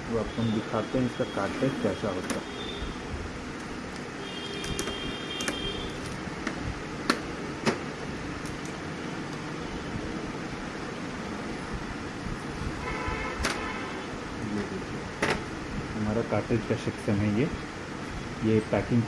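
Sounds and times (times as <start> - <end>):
steady background hum: 0.0 - 19.0
sharp clicks and taps on plastic: 3.6 - 9.4.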